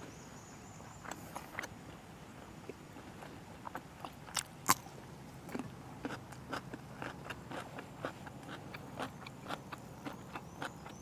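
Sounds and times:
chewing: 2.6s - 11.0s
crunchy bite into pepper: 4.3s - 4.9s.

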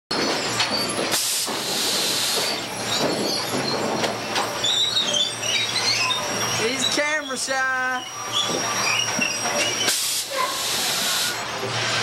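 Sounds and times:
machinery clatter and banging boards: 0.1s - 6.6s
metal squeals: 2.2s - 12.0s
hiss burst: 9.8s - 11.4s.

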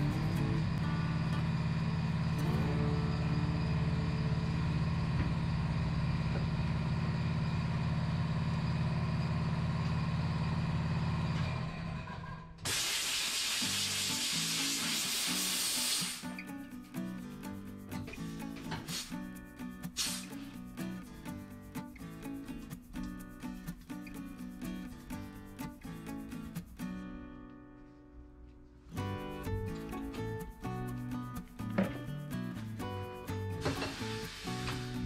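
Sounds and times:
background music: 0.0s - 1.3s, 14.4s - 28.3s, 28.9s - 35.0s
compressed air hissing: 12.7s - 16.4s, 18.8s - 19.3s, 19.9s - 20.6s, 33.6s - 35.0s.

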